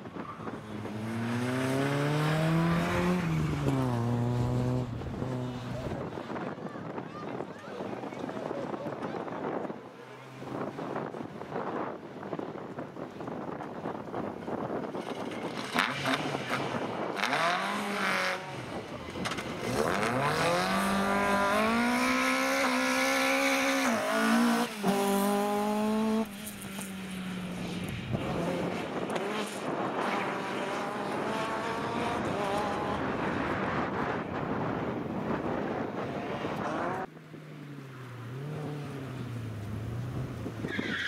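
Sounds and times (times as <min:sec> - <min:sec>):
rally car engine accelerating: 0:00.4 - 0:06.5, 0:15.0 - 0:26.9, 0:27.5 - 0:37.1.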